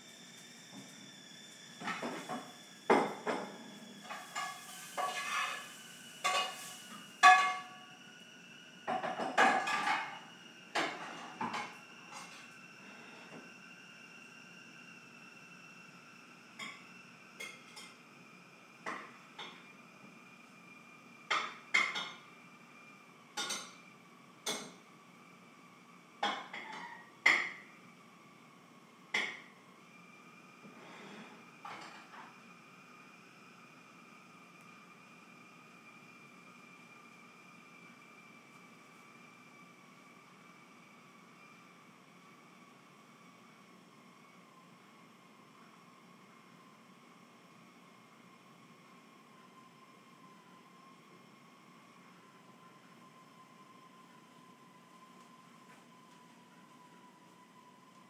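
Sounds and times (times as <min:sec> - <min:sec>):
kitchenware taps and clanks: 0:06.3 - 0:06.6, 0:07.2 - 0:07.7, 0:08.9 - 0:10.1.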